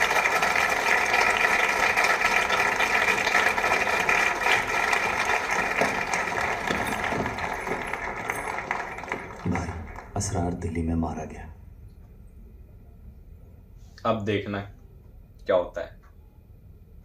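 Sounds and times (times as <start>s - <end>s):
crowd clapping and cheering: 0.0s - 10.9s.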